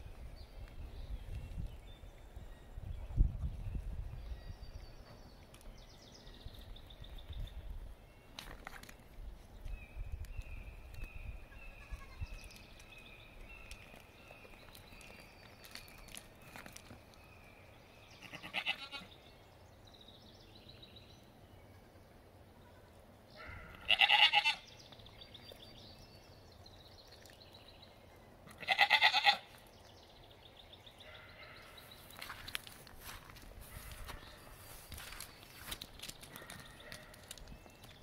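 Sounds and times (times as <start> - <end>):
goats bleating: 23.9 - 24.6, 28.6 - 29.4.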